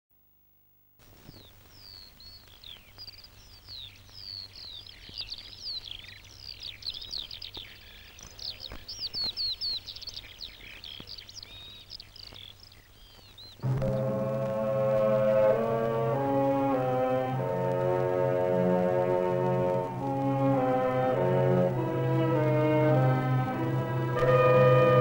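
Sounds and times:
small birds chirping: 1.0 - 25.0.

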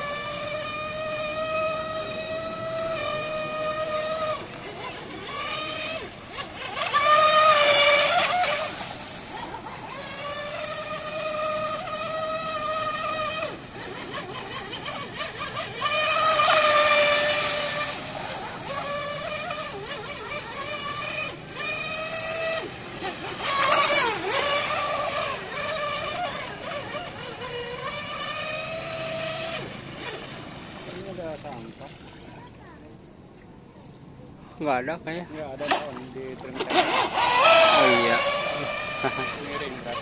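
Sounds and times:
electric motor whine of toy boat: 0.0 - 31.7, 35.6 - 40.0.

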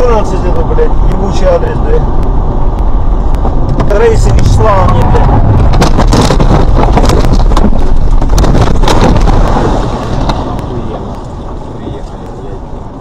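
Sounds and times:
car crashing with loud rumbling: 3.7 - 11.0
bangs and knocks from car body: 5.6 - 10.5.

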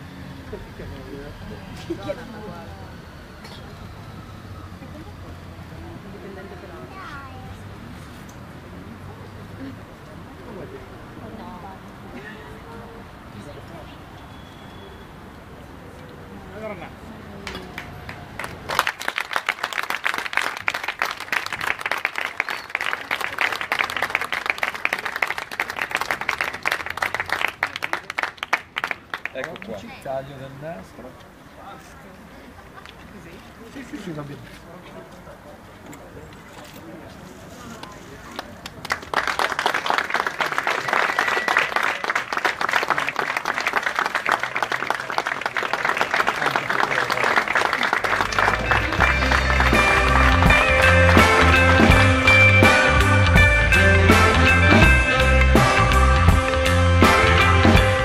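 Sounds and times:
crowd applauding: 17.4 - 30.0, 38.3 - 58.0.

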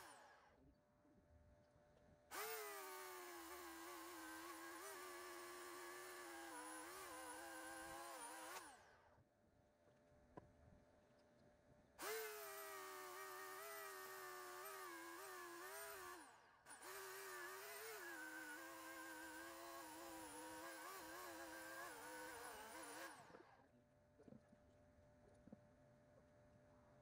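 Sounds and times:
electric chainsaw cutting log: 0.0 - 0.5, 2.3 - 9.1, 12.0 - 23.6.

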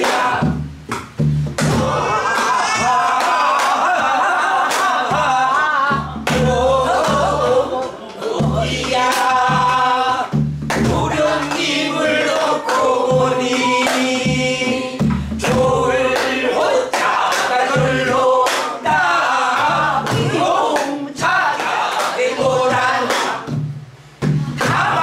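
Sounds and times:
group singing folk song: 0.0 - 25.0
barrel drum thumps: 0.3 - 2.1, 14.2 - 15.9.

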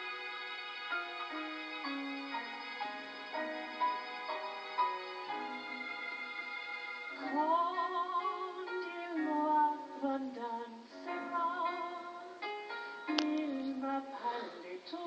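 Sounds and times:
instrumental backing music: 0.0 - 15.0
person singing with vibrato: 6.2 - 12.4, 13.1 - 15.0.

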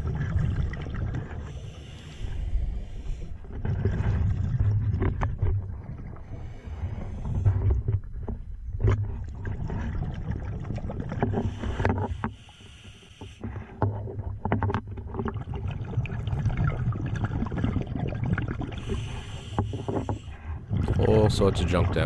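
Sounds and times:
exhaled bubbles underwater: 0.0 - 12.2, 13.6 - 22.0
regulator inhale hiss: 1.5 - 3.4, 11.5 - 13.6, 18.8 - 20.4.

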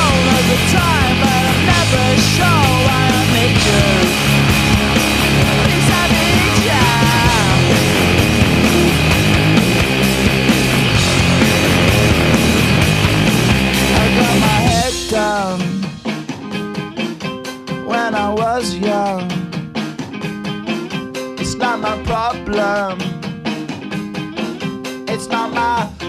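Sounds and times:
person singing: 0.0 - 4.4, 5.3 - 8.2, 13.8 - 16.1, 17.8 - 19.5, 21.4 - 23.1, 25.1 - 26.0
loud rock music: 0.0 - 26.0
steady drum beat: 0.0 - 26.0.

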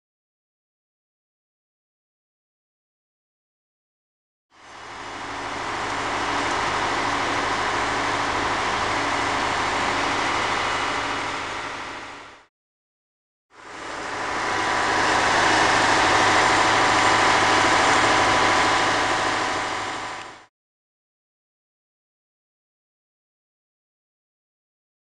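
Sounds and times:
engine running steadily: 4.6 - 12.5, 13.6 - 20.5.

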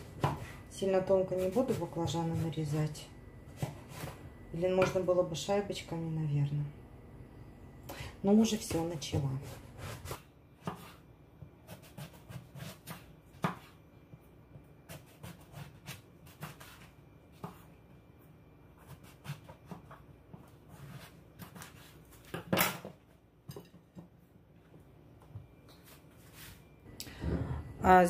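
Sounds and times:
knife slicing eggplant: 0.0 - 2.7, 8.5 - 13.8, 14.8 - 17.7, 18.8 - 22.9.

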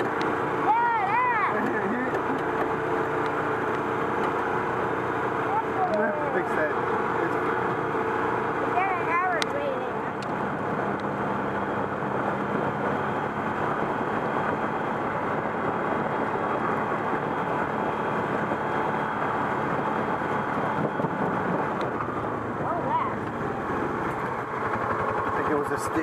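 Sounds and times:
atv engine running: 0.0 - 26.0
wind rushing over microphone: 9.6 - 25.4.

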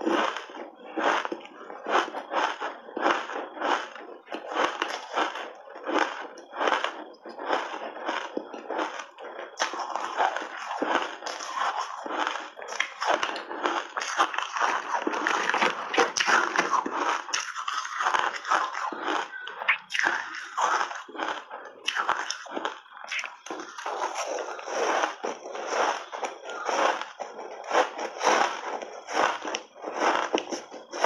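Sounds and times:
ice being chewed: 0.0 - 31.0.

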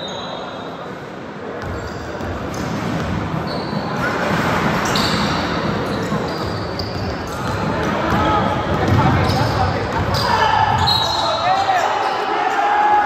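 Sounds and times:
chatter of players and crowd: 0.0 - 13.0
sneakers squeaking on court: 1.6 - 12.2
basketball bouncing: 5.6 - 10.9.

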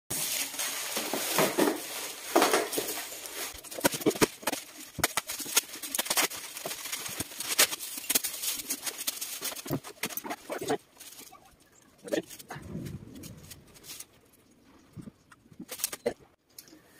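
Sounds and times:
knife slitting plastic: 0.1 - 10.6
bubble wrap and cardboard crinkling: 0.1 - 14.5.

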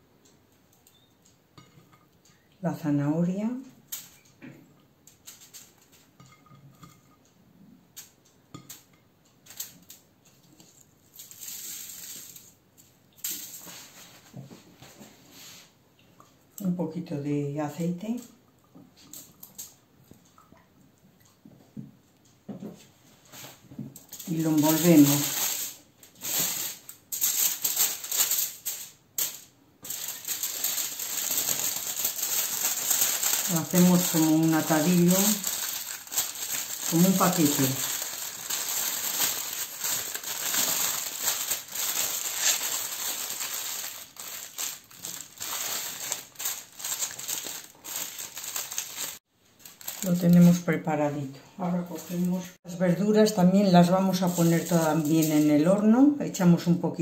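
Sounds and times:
aluminium foil crinkling: 3.7 - 4.3, 5.1 - 7.0, 8.0 - 14.3, 23.3 - 50.9, 51.7 - 52.6, 53.8 - 55.8.

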